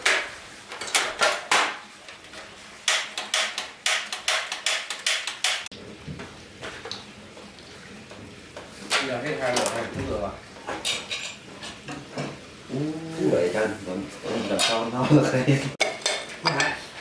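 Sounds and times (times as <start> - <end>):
hard objects knocking and clattering: 2.9 - 6.2.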